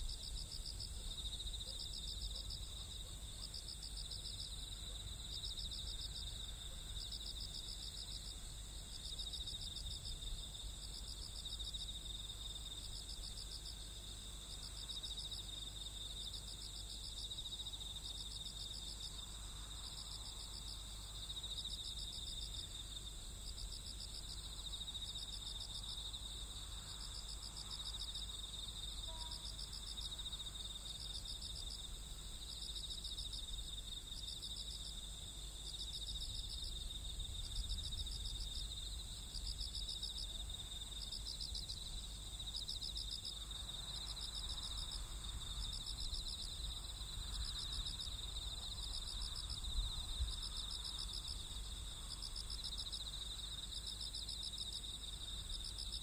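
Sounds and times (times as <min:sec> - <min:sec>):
cricket pulsed trills: 0:00.0 - 0:56.0.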